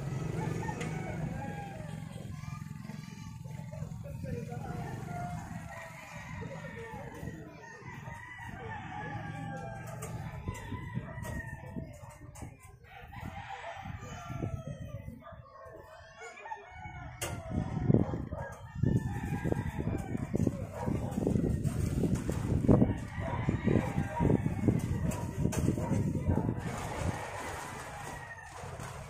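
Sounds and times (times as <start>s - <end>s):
rooster crowing: 0.1s - 2.1s, 4.8s - 11.7s, 16.1s - 20.6s, 22.8s - 25.4s, 26.3s - 29.0s
plastic tarpaulin rustling: 20.3s - 23.1s, 24.8s - 29.0s.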